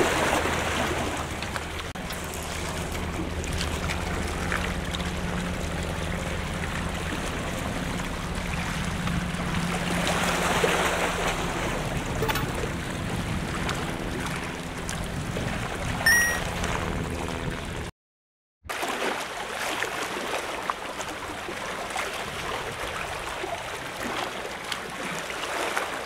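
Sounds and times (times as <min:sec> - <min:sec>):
short high beep: 0:16.1 - 0:16.5.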